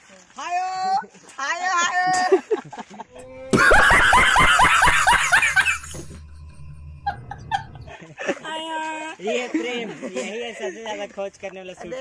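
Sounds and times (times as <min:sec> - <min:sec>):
rapid laughter: 0:02.2 - 0:08.5
low music drone: 0:03.2 - 0:08.0.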